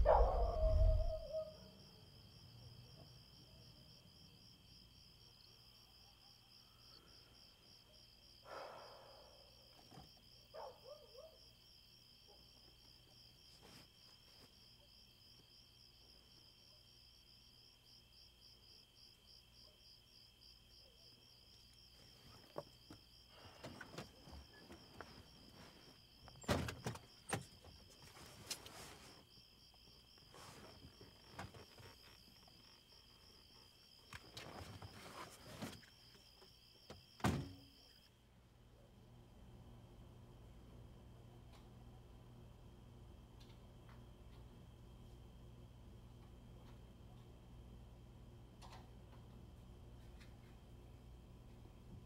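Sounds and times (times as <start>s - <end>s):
crickets trilling: 0.0s - 14.2s, 14.9s - 38.1s.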